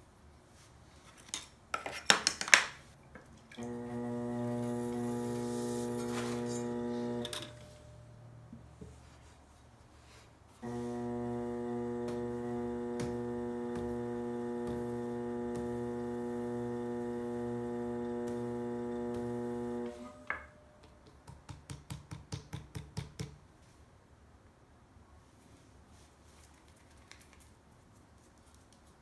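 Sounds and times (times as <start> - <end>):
potter's wheel motor humming: 3.6 - 8.7, 10.6 - 20.5.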